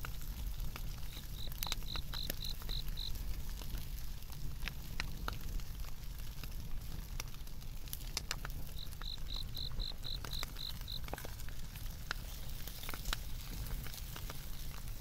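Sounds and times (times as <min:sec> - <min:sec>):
firewood crackling and popping: 0:00.0 - 0:15.0
insect chirping: 0:01.1 - 0:03.2, 0:08.7 - 0:11.0.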